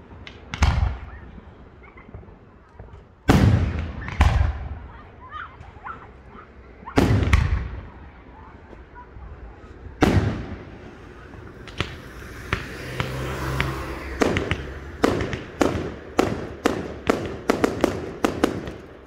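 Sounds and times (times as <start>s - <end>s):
fireworks bangs: 0.1s - 8.9s, 9.8s - 19.0s
fireworks cracks: 9.9s - 19.0s.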